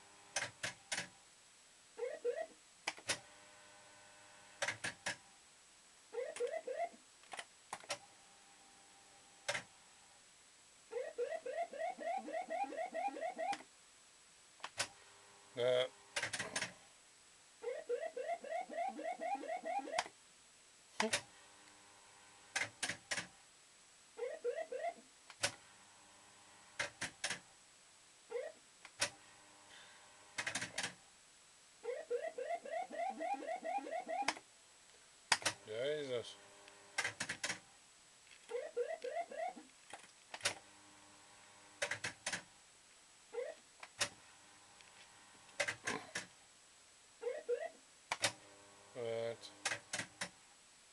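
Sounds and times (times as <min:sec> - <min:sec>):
faint steady tone: 0:07.9 - 0:16.1
rising electronic bleeps: 0:11.0 - 0:13.6, 0:17.6 - 0:20.0, 0:31.9 - 0:34.3.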